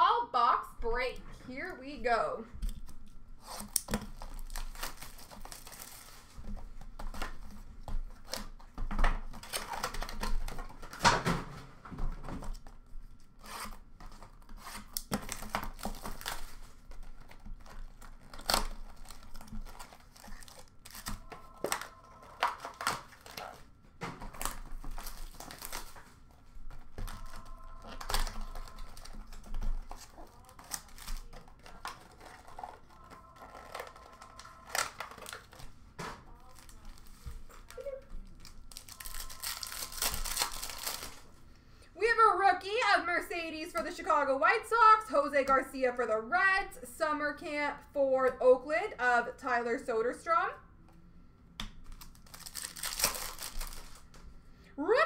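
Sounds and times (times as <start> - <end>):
card packs rustling: 2.7 - 41.5, 51.8 - 54.4
plastic wrapper ripping: 2.9 - 8.7, 9.3 - 11.0, 13.4 - 41.3, 51.8 - 54.2.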